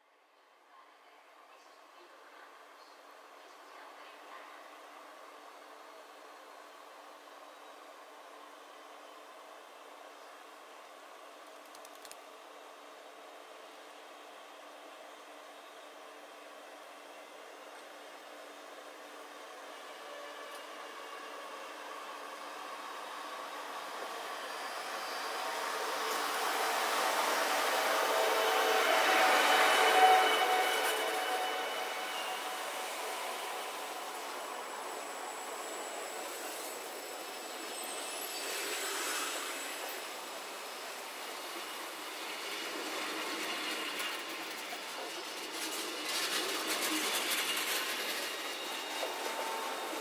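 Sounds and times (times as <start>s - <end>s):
electric locomotive hum and whine: 1.3s - 50.0s
train coaches rolling past: 12.2s - 50.0s
faint high wheel squeal: 24.0s - 40.8s, 46.2s - 50.0s.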